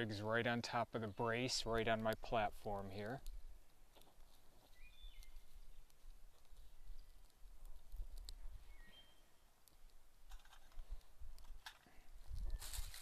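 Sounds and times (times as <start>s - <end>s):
dry twigs snapping and clicking: 3.1s - 8.4s, 9.6s - 13.0s.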